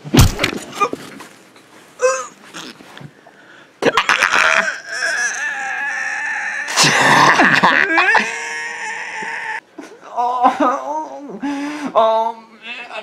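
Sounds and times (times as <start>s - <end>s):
man sobbing: 3.9s - 13.0s
man wailing in pain: 4.1s - 11.4s.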